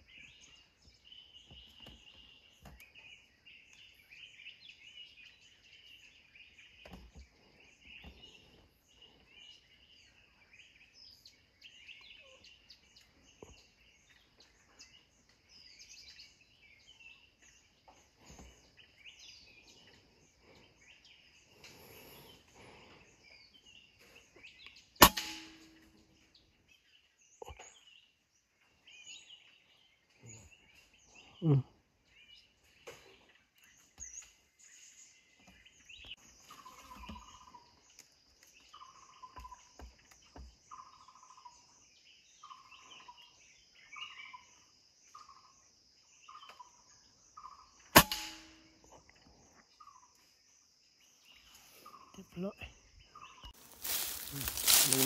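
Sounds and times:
bird chirps: 0.0s - 55.0s
air rifle shot: 25.0s - 25.6s, 48.0s - 48.5s
insects chorus: 35.8s - 55.0s.

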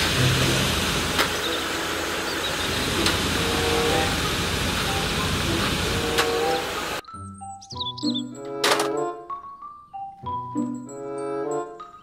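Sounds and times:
concrete mixer truck running: 0.0s - 7.0s.

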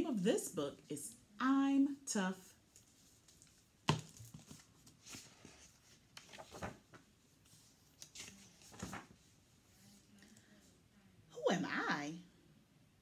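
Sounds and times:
pages rustling: 2.7s - 9.3s
soft knocks of book: 3.8s - 5.6s.

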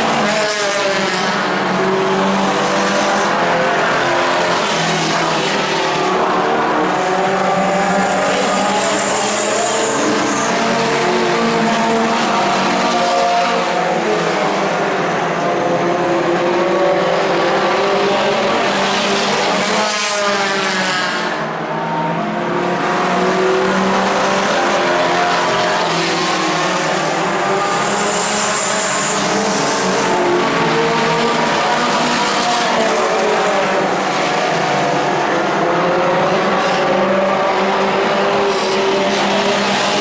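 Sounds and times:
race car engines: 0.0s - 40.0s.

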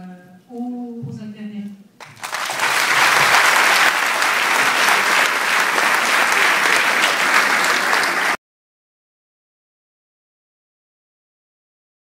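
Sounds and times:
audience applauding: 2.0s - 8.4s.

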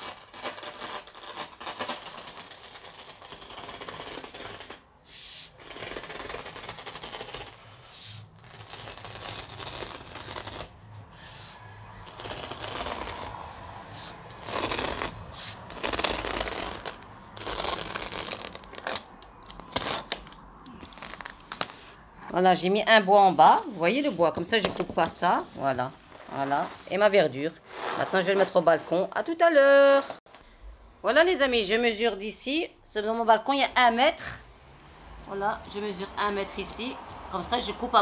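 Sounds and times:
blade slicing artificial grass: 1.8s - 20.2s.

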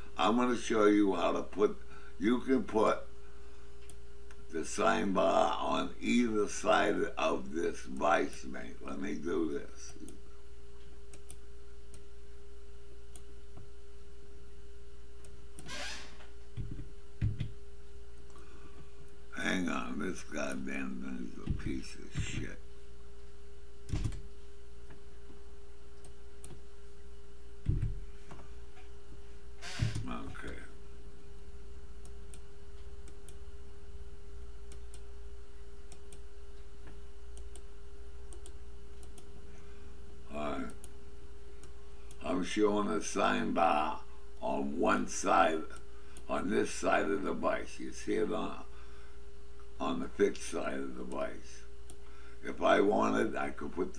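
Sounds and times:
electrical hum: 0.0s - 53.9s
computer mouse clicking: 11.1s - 12.1s, 34.7s - 35.1s, 35.9s - 36.2s, 36.8s - 37.7s, 38.3s - 39.3s
faint computer mouse clicks: 38.3s - 39.3s.

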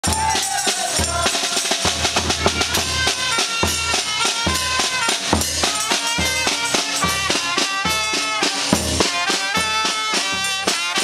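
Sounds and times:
bass drum beat: 0.0s - 10.7s
brass and clarinet playing: 2.2s - 11.0s.

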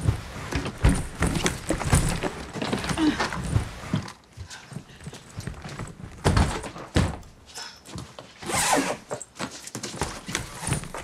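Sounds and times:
dull thumps: 0.0s - 4.1s.

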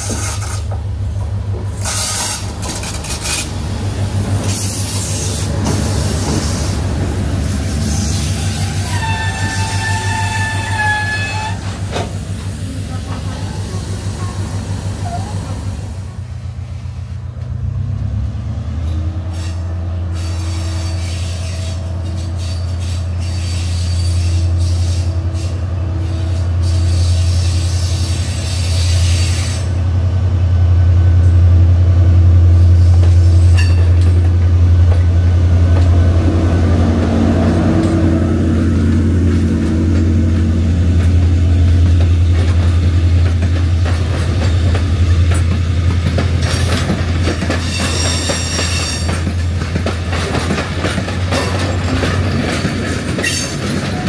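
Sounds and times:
diesel train drone: 0.0s - 54.0s
wheels clicking over rail joints: 39.4s - 54.0s.

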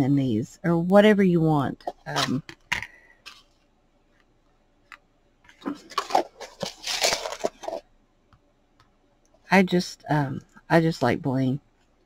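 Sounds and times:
plastic container rustling and clicking: 5.5s - 7.9s.

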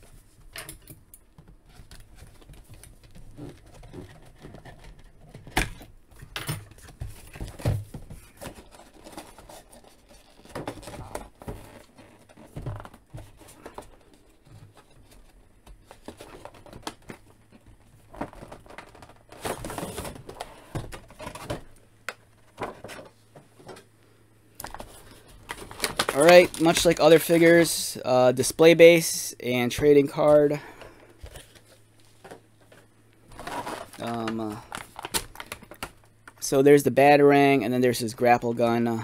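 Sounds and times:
plastic crinkling: 24.6s - 27.8s, 31.2s - 36.4s.

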